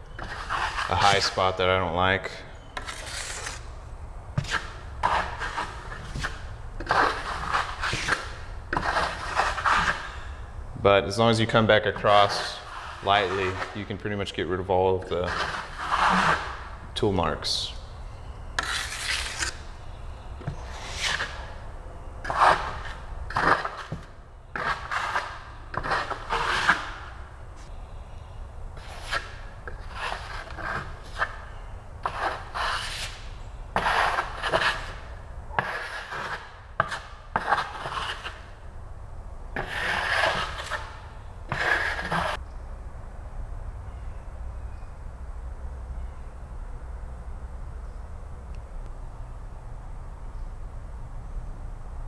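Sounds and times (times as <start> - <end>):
trowel scraping wet plaster: 0.2 - 1.5, 2.8 - 3.7, 4.4 - 10.2, 11.4 - 14.3, 15.0 - 16.6, 18.6 - 19.7, 20.5 - 21.6, 22.2 - 27.2, 28.8 - 38.5, 39.6 - 42.4.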